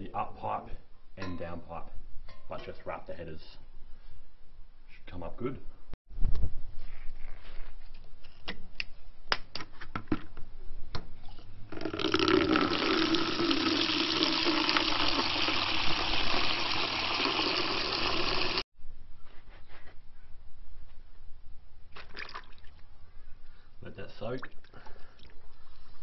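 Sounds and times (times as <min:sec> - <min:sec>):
water gushing into plastic bucket: 0:11.7 - 0:18.6.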